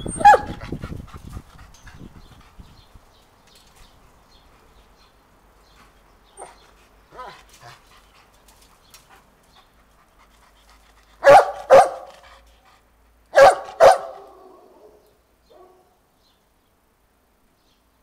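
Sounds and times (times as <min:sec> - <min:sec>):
dog barking: 0:00.2 - 0:00.6, 0:11.2 - 0:12.2, 0:13.3 - 0:16.0.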